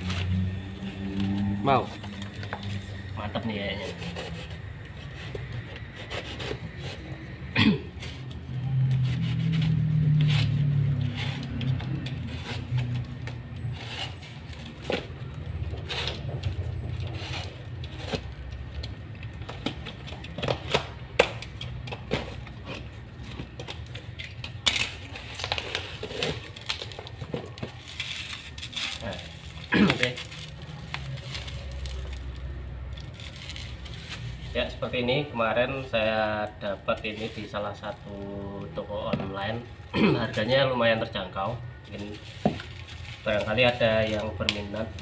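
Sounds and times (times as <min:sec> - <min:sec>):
cardboard being torn: 0:03.6 - 0:07.4, 0:24.2 - 0:32.4
bubble wrap crinkling: 0:23.2 - 0:34.9, 0:41.9 - 0:45.0
packing tape ripping: 0:23.8 - 0:34.4.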